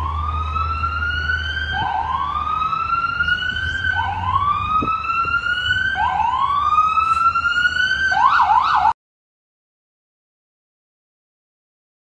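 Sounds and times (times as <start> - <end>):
siren wailing and yelping: 0.0 - 9.0.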